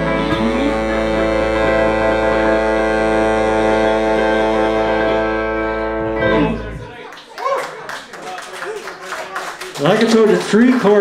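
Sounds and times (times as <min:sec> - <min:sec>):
live band holding a chord: 0:00.0 - 0:06.9.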